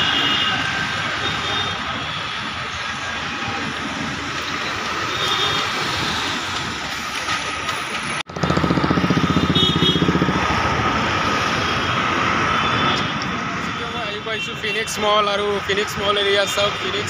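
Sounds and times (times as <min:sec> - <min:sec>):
street traffic: 0:00.0 - 0:17.0.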